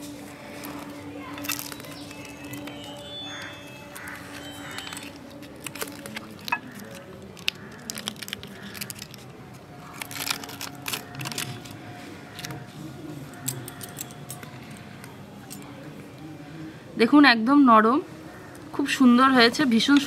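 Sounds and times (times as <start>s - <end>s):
leaf crinkling and crackling: 0.0s - 15.7s.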